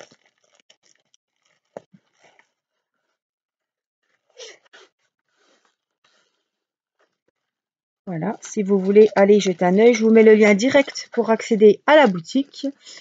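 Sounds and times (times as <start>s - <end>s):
plastic packaging crinkling: 0.0s - 2.7s, 8.1s - 13.0s.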